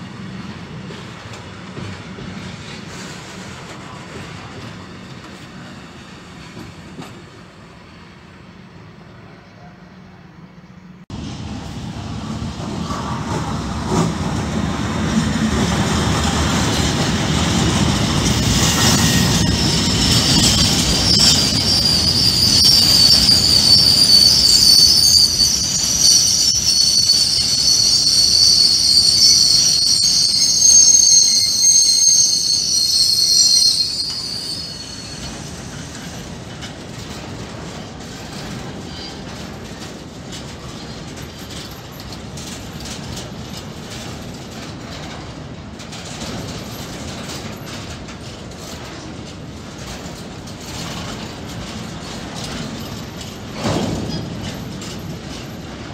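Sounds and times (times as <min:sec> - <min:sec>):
electric locomotive passing: 0:00.0 - 0:55.9
freight wagons rolling past: 0:11.2 - 0:55.9
wheels squealing: 0:16.6 - 0:36.4.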